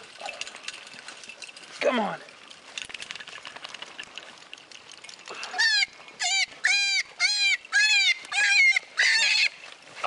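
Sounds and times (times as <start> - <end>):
scratching and rustling: 0.0 - 6.6
high-pitched animal cries: 5.4 - 9.6.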